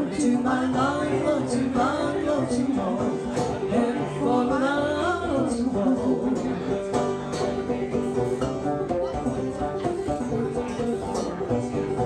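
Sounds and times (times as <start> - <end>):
person singing: 0.0 - 6.6
banjos playing: 0.0 - 12.0.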